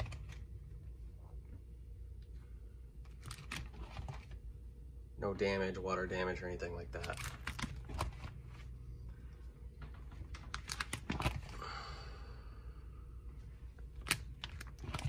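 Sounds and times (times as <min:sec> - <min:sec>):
plastic sleeve pages crinkling: 0:03.0 - 0:04.4, 0:06.9 - 0:08.7, 0:09.9 - 0:11.6, 0:13.8 - 0:15.0.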